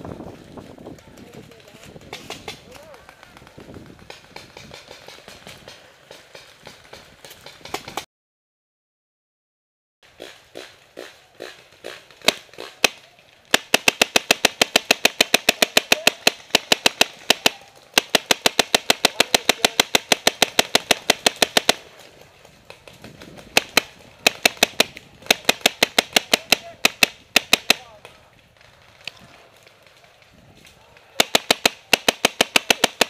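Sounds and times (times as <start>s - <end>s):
paintball markers firing: 10.2s - 28.2s, 31.2s - 33.0s.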